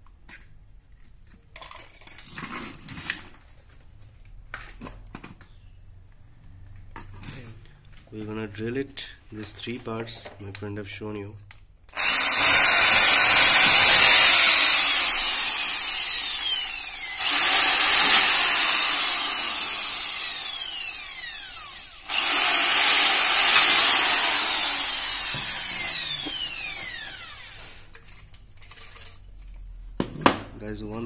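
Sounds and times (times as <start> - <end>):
electric drill boring through plastic: 12.0 - 27.9.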